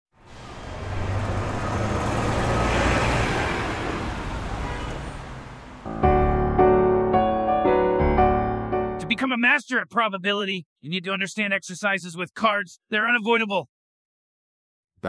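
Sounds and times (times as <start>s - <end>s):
street traffic rumble: 0.2s - 6.0s
piano music: 5.8s - 9.2s.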